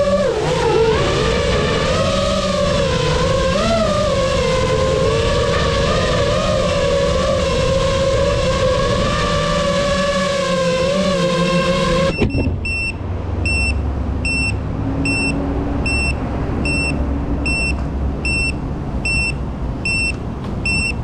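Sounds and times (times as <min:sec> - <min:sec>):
quadcopter motors whining: 0:00.0 - 0:12.9
short high buzzer beeps: 0:12.1 - 0:21.0.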